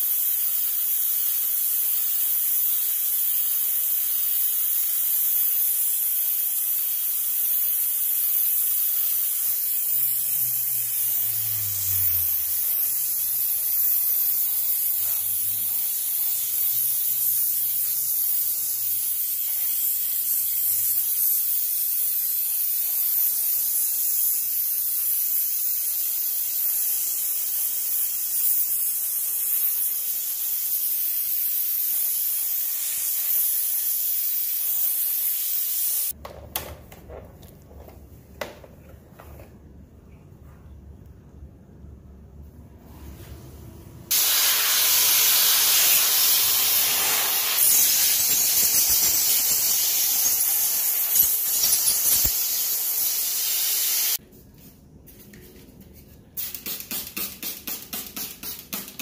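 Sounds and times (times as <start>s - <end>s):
steam cleaner hissing: 0.0s - 36.2s, 44.1s - 54.2s.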